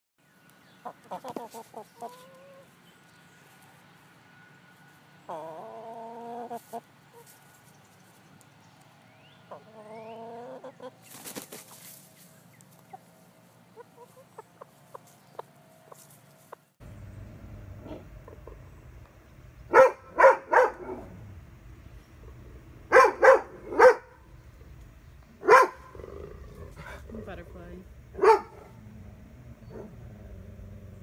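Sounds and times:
chickens calling: 0.7s - 3.6s, 5.2s - 8.3s, 9.2s - 27.5s.

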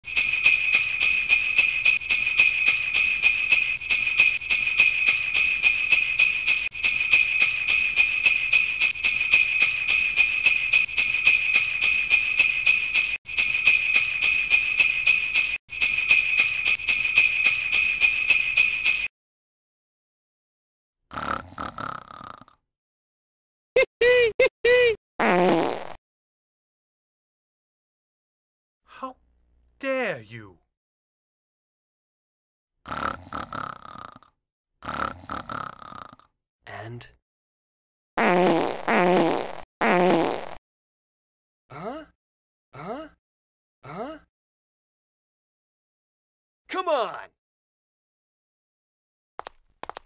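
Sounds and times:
sleigh bells jingling: 0.0s - 19.1s.

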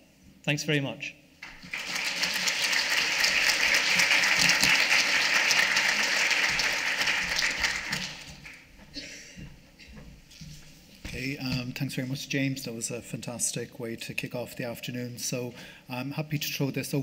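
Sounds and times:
audience applauding: 1.4s - 8.7s.

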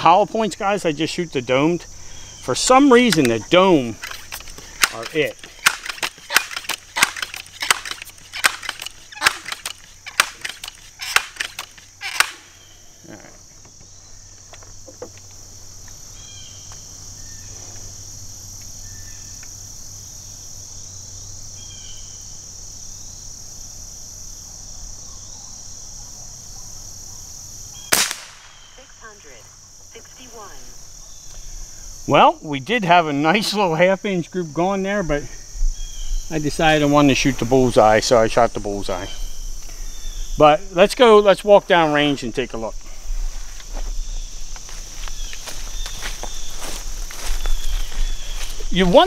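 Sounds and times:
high insect buzz: 0.0s - 49.0s
air rifle pumping clacks: 4.0s - 12.4s
air rifle firing crack: 4.0s - 12.6s, 27.9s - 28.8s.

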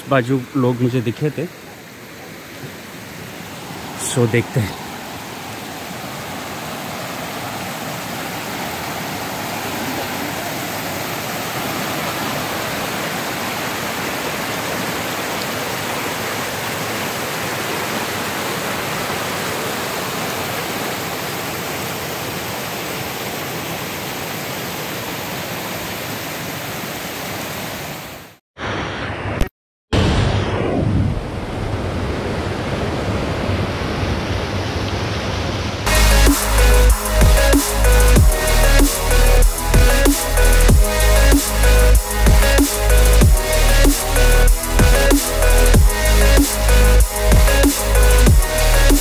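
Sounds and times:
waterfall roaring: 0.0s - 28.3s.

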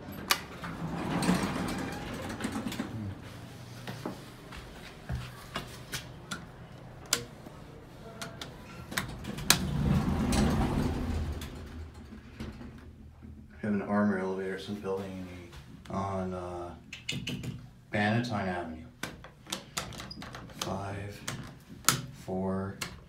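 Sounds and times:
sliding rumbling noise: 0.0s - 4.5s, 8.9s - 15.5s
elevator buttons clicking: 6.0s - 7.4s.

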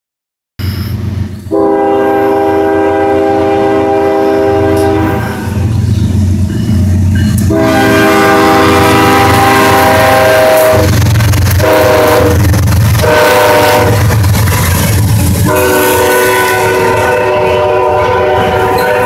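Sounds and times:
locomotive rumble: 0.6s - 19.0s
locomotive air horn blasts: 1.5s - 5.7s, 7.4s - 14.2s, 15.4s - 19.0s.

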